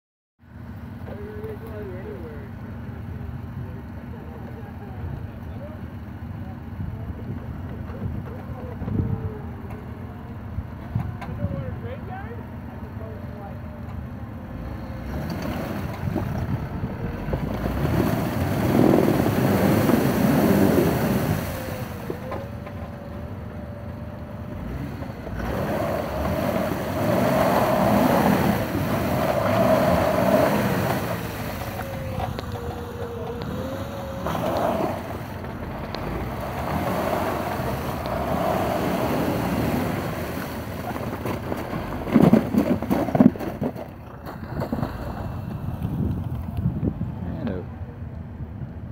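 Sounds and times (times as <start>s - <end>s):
tires churning through mud and water: 0.4s - 48.9s
car engine revving: 24.4s - 43.7s.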